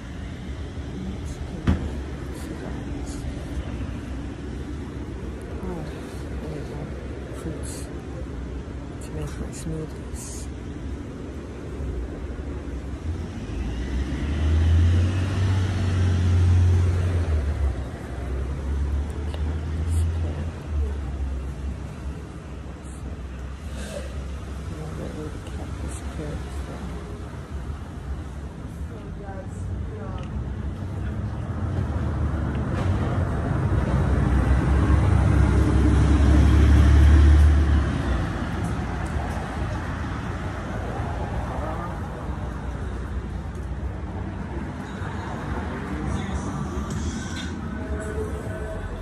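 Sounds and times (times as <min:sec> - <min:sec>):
steady low traffic rumble: 0:00.0 - 0:49.0
vehicle passing: 0:12.7 - 0:27.8, 0:31.2 - 0:49.0.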